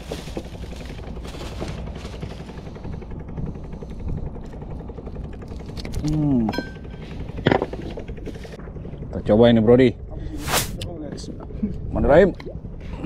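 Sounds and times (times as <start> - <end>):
boat engine chugging: 0.0 - 10.1.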